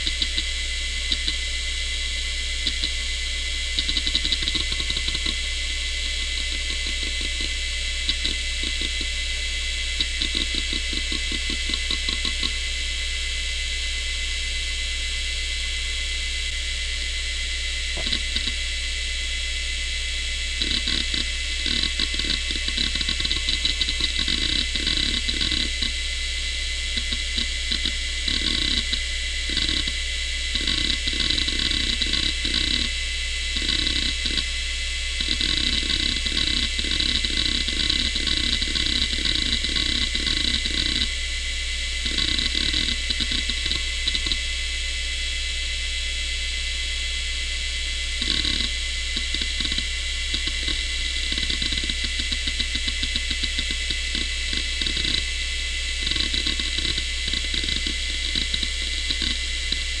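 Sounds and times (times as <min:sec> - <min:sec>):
hard drive seek clicks: 0:00.0 - 0:01.5, 0:02.5 - 0:12.7, 0:17.9 - 0:18.7, 0:20.5 - 0:26.1, 0:26.8 - 0:34.5, 0:35.2 - 0:41.2, 0:42.0 - 0:44.5, 0:48.1 - 1:00.0
hard drive spindle whine: 0:00.0 - 1:00.0.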